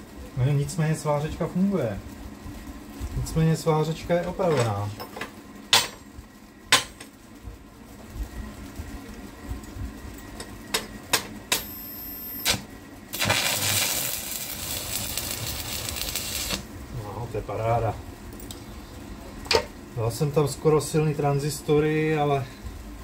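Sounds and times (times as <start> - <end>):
welding arc sizzling: 7.9 - 19.3.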